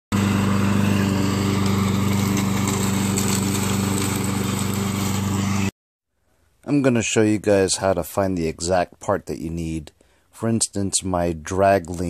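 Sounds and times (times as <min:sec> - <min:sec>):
lawn mower engine running: 0:00.1 - 0:05.7.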